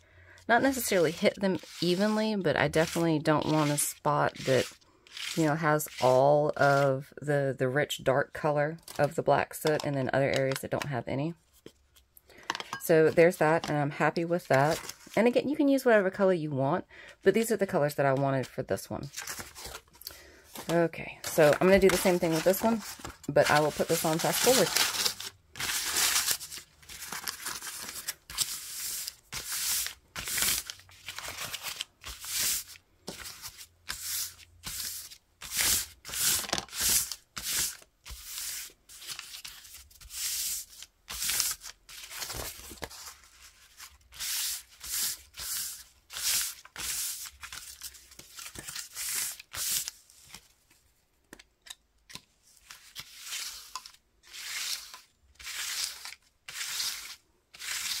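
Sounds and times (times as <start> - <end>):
paper rustling and crinkling: 0.6 - 6.1, 14.5 - 15.2, 19.0 - 50.9, 51.6 - 58.0.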